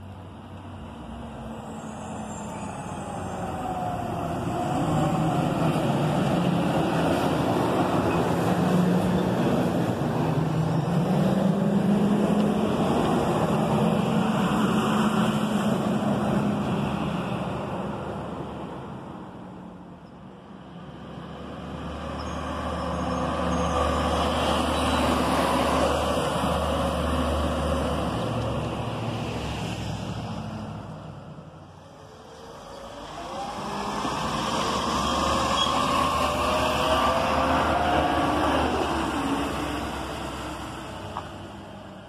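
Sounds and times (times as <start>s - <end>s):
truck engine whine: 0.0s - 42.0s
garbage truck driving by: 21.4s - 42.0s.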